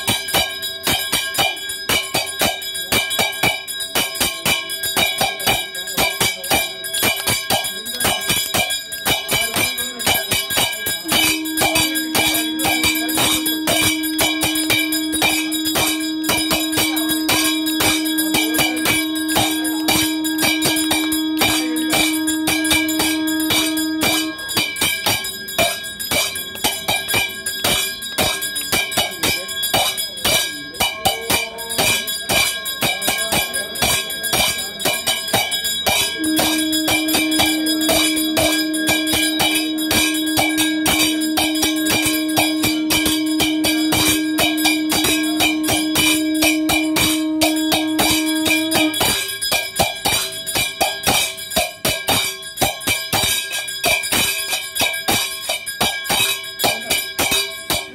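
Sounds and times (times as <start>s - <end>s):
bells clanging rapidly: 0.0s - 57.9s
steady drone tone: 6.5s - 49.4s.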